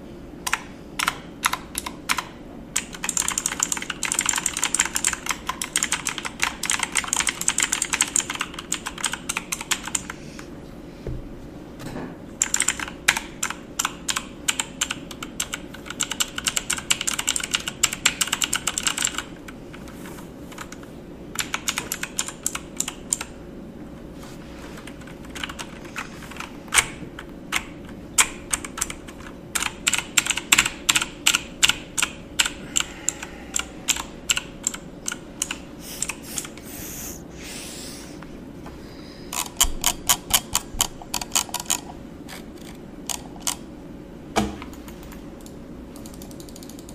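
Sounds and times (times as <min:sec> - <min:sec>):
faint steady hum: 0:00.0 - 0:46.9
keyboard typing clicks: 0:00.4 - 0:10.2, 0:12.4 - 0:20.8, 0:21.4 - 0:23.3, 0:24.8 - 0:36.6, 0:44.8 - 0:46.9.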